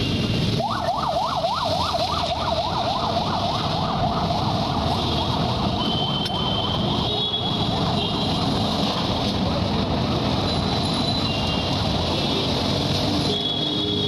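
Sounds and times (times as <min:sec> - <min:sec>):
emergency siren yelping: 0:00.5 - 0:07.5.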